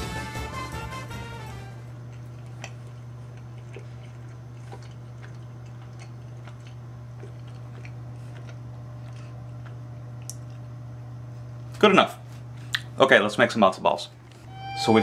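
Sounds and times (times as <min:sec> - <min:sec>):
steady low hum: 0:00.3 - 0:15.0.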